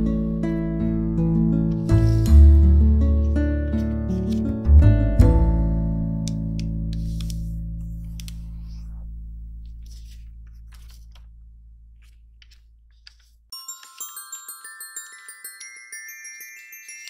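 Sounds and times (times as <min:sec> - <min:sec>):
music with low sustained notes: 0:00.0 - 0:11.8
paper rustling and creasing: 0:03.8 - 0:04.6, 0:06.9 - 0:09.0, 0:09.6 - 0:14.1
glockenspiel-like mallet tune: 0:13.5 - 0:17.0.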